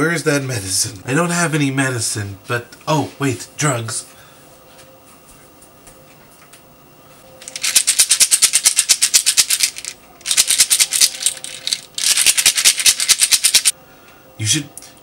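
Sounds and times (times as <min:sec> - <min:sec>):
pills rattling in plastic bottle: 0:07.4 - 0:13.7.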